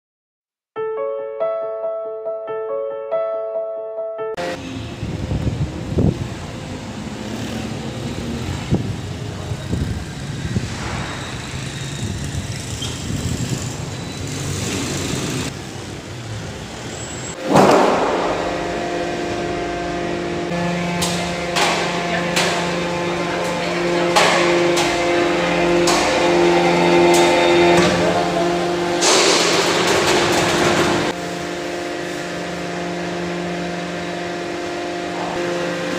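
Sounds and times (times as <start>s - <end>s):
street traffic noise: 4.4s - 35.9s
machine hum: 17.4s - 35.9s.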